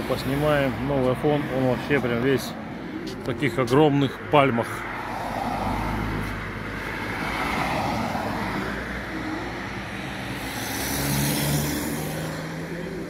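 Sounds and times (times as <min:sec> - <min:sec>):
vehicle driving past: 0:10.2 - 0:13.0.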